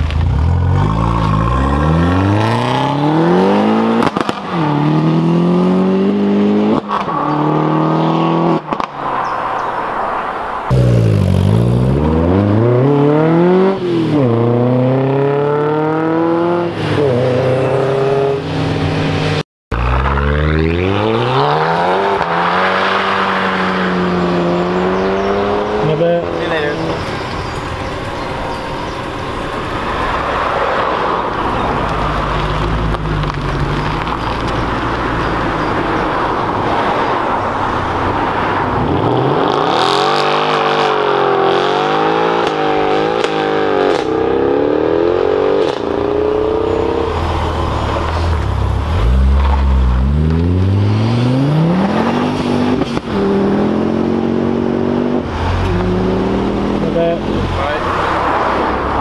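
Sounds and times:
rumbling car engine: 0.0s - 8.9s, 10.6s - 59.0s
car engine revving: 0.0s - 9.6s, 10.6s - 59.0s
car accelerating through gears: 10.7s - 18.7s, 38.4s - 59.0s.

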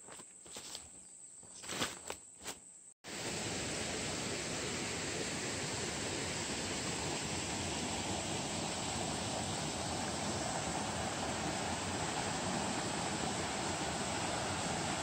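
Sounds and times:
soft footsteps: 0.0s - 2.6s
rocky mountain stream rushing: 3.1s - 15.0s.

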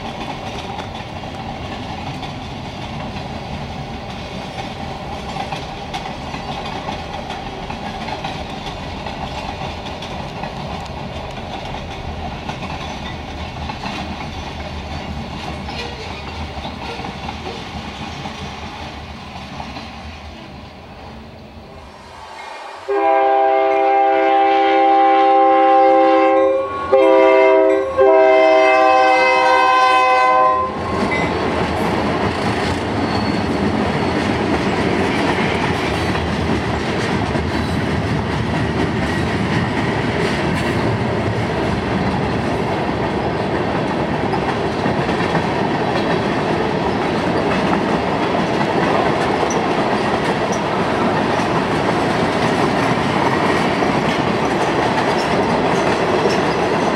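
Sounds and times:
wheels clacking over rail joints: 0.0s - 20.4s, 30.8s - 56.9s
locomotive horn: 22.9s - 30.9s.

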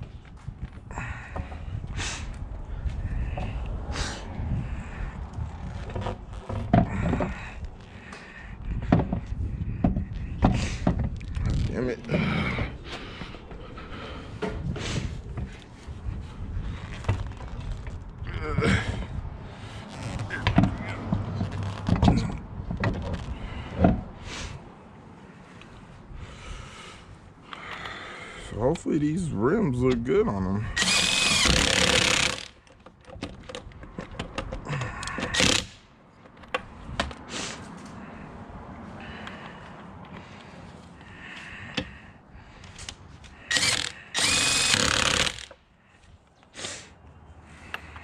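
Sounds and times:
tools and lug nuts clicking: 30.8s - 37.2s, 42.6s - 45.6s.

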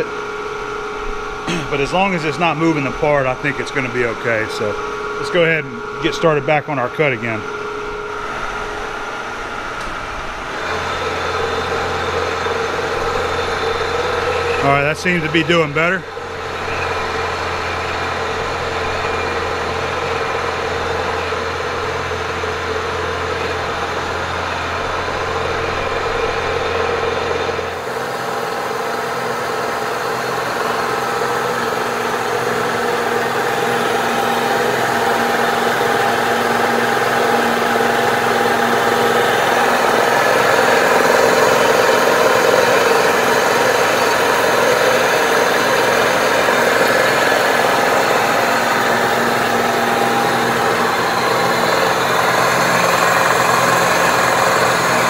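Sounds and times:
milling machine cutting metal: 1.4s - 55.0s.

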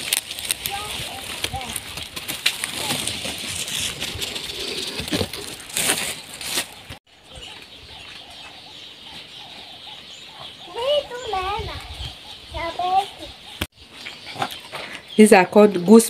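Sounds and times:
chickens wing flapping: 0.4s - 5.7s
faint chicken clucking: 7.1s - 15.1s.

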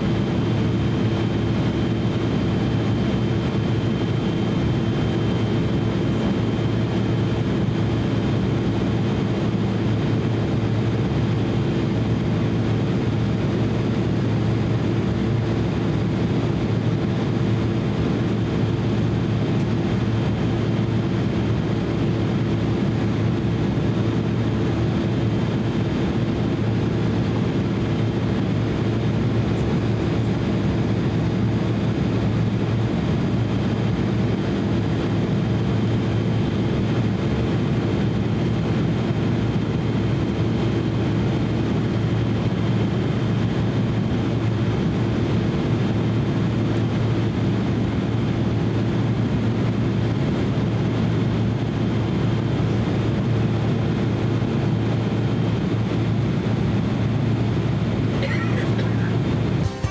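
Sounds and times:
airliner cabin drone: 0.0s - 59.9s.

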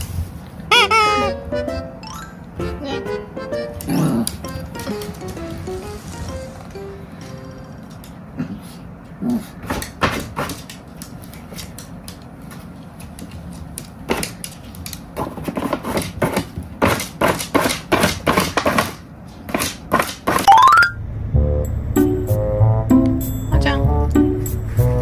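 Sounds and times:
music: 1.1s - 7.8s, 21.4s - 25.0s
rising sound effect: 5.3s - 7.9s, 20.5s - 24.1s
dog claws tapping on wood floor: 9.7s - 17.6s.

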